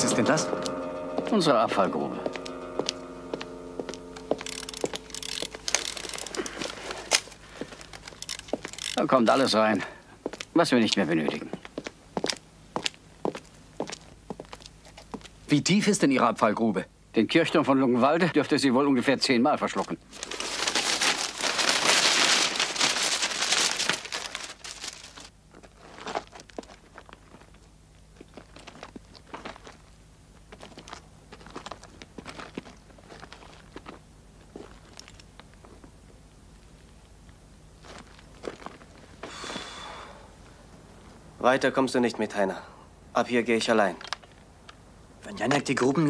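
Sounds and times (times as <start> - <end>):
steady hum: 0.0 - 43.6
mechanism clicking and rattling: 4.4 - 9.5
paper rustling and crinkling: 4.4 - 9.5, 19.8 - 27.6.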